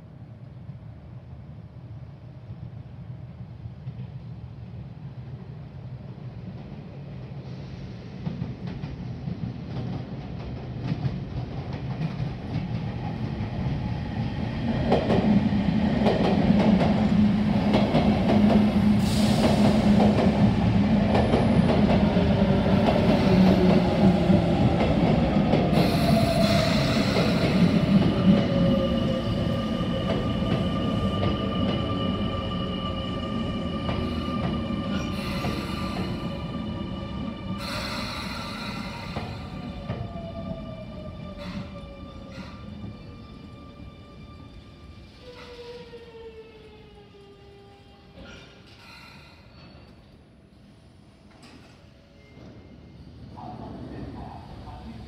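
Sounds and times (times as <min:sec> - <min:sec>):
electric train rumble: 0:00.0 - 0:51.7
high brake squeal: 0:45.2 - 0:46.3, 0:48.2 - 0:50.0.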